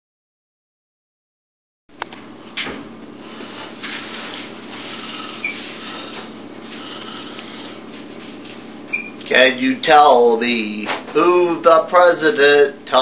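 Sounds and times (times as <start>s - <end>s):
room hum and hiss: 1.9s - 13.0s
brief squeak: 8.9s - 9.2s.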